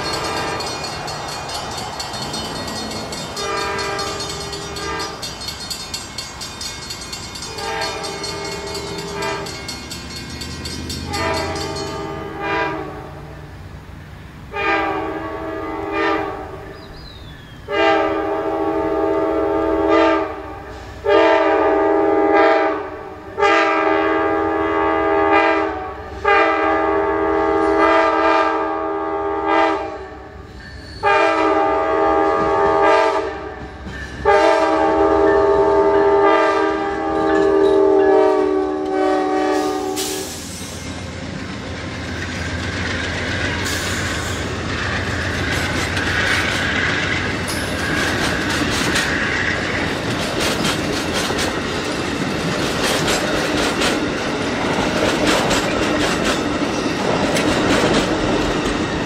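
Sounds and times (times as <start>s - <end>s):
locomotive air horn blasts: 0.0s - 0.9s, 3.3s - 5.3s, 7.5s - 9.6s, 11.0s - 13.5s, 14.5s - 16.7s, 17.7s - 30.4s, 31.0s - 40.5s
engine and wheels rumbling: 0.0s - 17.6s, 33.4s - 59.0s.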